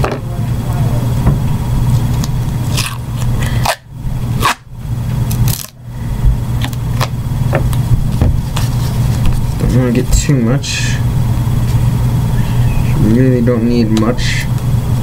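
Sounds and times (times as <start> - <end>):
low hum: 0.0 - 15.0
duct tape ripping: 2.2 - 4.7, 5.3 - 5.8.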